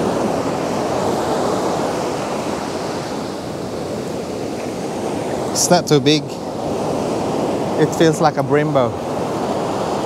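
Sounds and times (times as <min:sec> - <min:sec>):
ocean surf on beach: 0:00.0 - 0:10.0.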